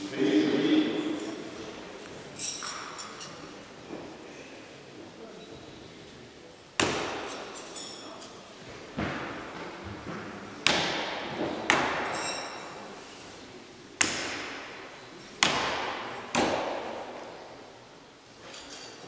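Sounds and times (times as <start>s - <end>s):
knives thudding into wood: 6.8s - 7.8s, 10.6s - 12.6s, 14.0s - 14.7s, 15.4s - 17.3s.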